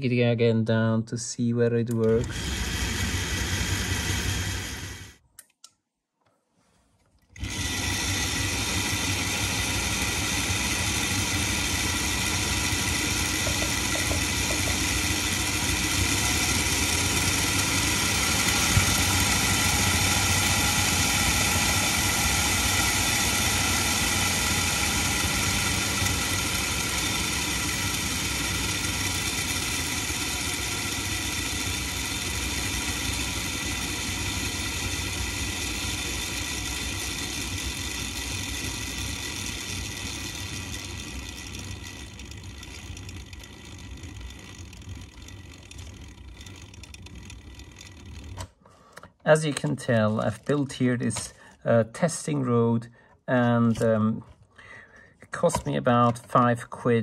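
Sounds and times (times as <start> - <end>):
model locomotive motor whirring: 1.9 - 5.2, 7.3 - 49.6.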